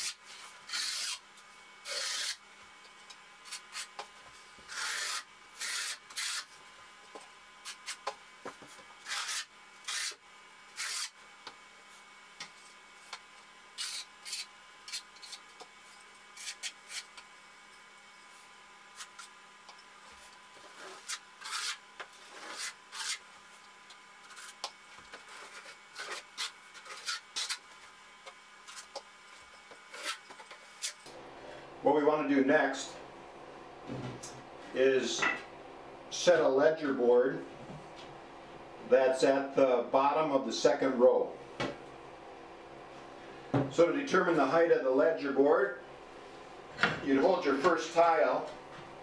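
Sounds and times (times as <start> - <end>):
trowel scraping mortar: 0.0 - 1.2, 1.8 - 2.4, 4.7 - 6.5, 9.0 - 10.2, 10.8 - 11.2, 13.8 - 15.4, 20.6 - 23.2, 24.2 - 27.6, 29.9 - 31.0.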